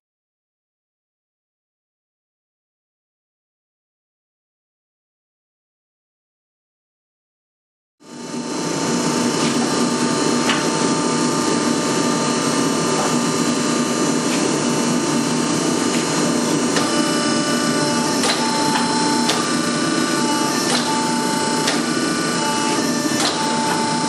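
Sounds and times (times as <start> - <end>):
hydraulic press pump hum: 8.1 - 24.0.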